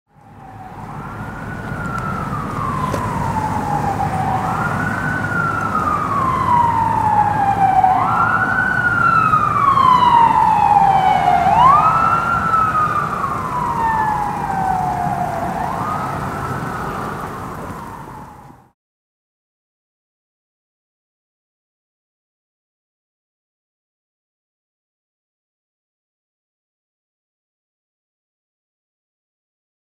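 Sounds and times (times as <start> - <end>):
ambulance siren wailing: 0.2 - 18.8.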